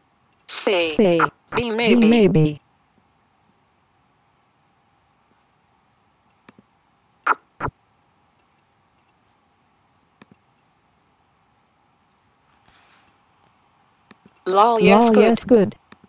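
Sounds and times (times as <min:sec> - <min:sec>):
faint mouse clicks: 0:10.2 - 0:10.7.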